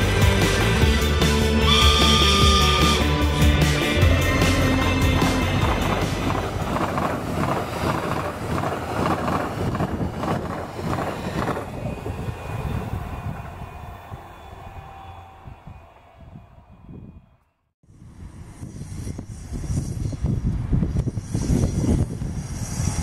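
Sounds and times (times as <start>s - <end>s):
train passing at speed: 0.0s - 16.8s
wheels clattering over rails: 5.0s - 11.9s.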